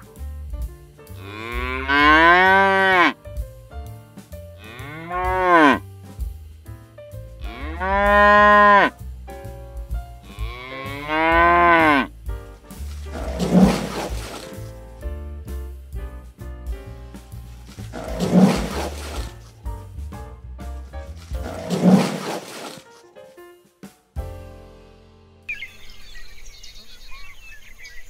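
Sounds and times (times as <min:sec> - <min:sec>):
cattle mooing: 0:01.2 - 0:03.2, 0:04.6 - 0:05.8, 0:07.4 - 0:08.9, 0:10.2 - 0:12.1, 0:13.1 - 0:14.4, 0:17.8 - 0:19.3.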